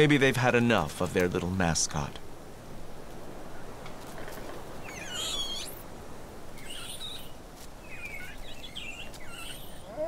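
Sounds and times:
monkey high-pitched wavering cries: 4.8 - 5.8, 6.6 - 8.4, 9.3 - 10.0.

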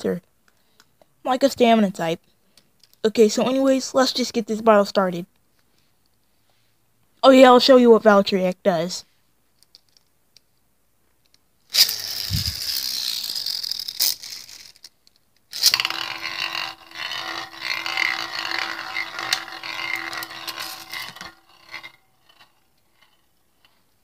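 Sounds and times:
spinning top whirring scrape: 11.7 - 14.9, 15.5 - 24.0.

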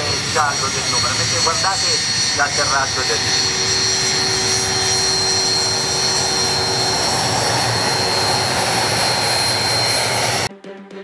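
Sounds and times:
jet engine roar with whine: 0.0 - 10.5.

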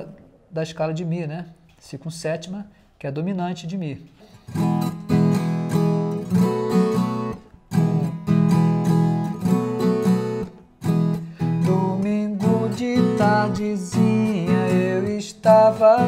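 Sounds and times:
guitar strummed chords: 4.5 - 16.0.

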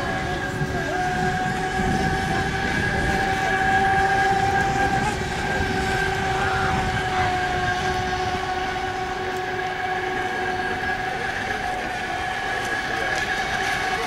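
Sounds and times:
model speedboat motor whine: 0.0 - 14.0.

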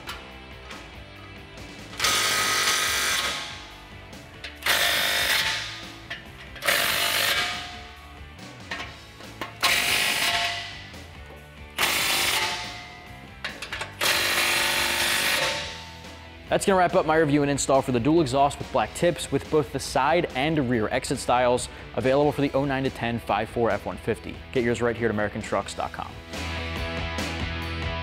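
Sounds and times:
cordless power tool tightening nuts: 1.9 - 3.8, 4.4 - 7.9, 11.8 - 15.8.

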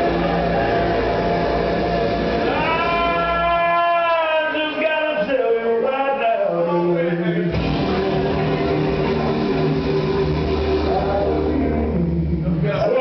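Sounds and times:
bass: 0.0 - 13.0
person singing: 0.0 - 13.0.

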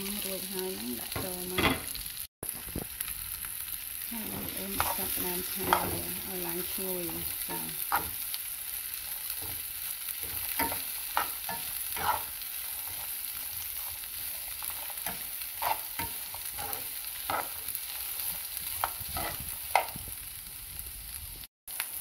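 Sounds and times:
oil sizzling: 0.0 - 22.0
spatula scraping frying pan: 4.1 - 20.2.

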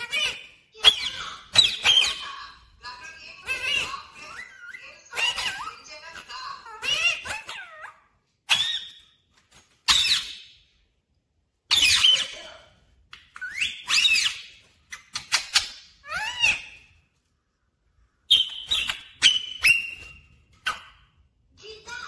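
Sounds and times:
parakeet whistled calls: 8.5 - 9.1, 13.4 - 14.6, 18.3 - 20.9.

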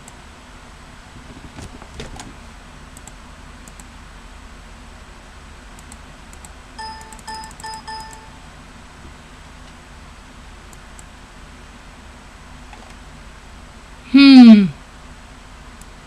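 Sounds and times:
light clicks: 3.0 - 3.9
short electronic beeps: 6.8 - 8.4.

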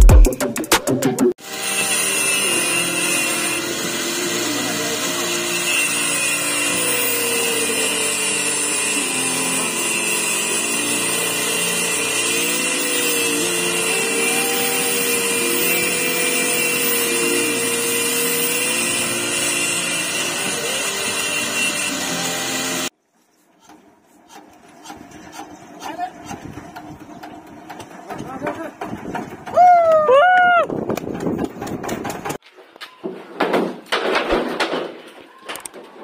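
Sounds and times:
angle grinder cutting steel: 1.4 - 22.9.

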